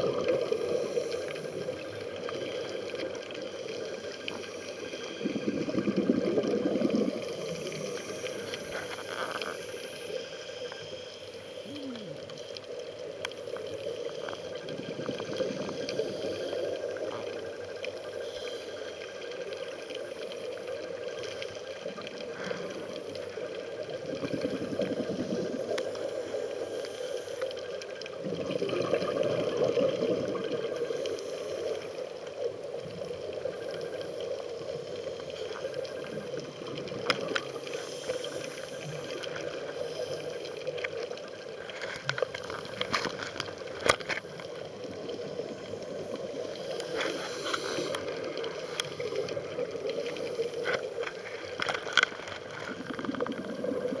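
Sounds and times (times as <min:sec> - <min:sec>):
diver's bubbles gurgling underwater: 0:00.0 - 0:03.2, 0:05.1 - 0:08.9, 0:23.8 - 0:26.4, 0:28.1 - 0:31.0, 0:52.6 - 0:54.0
steady underwater noise: 0:00.0 - 0:54.0.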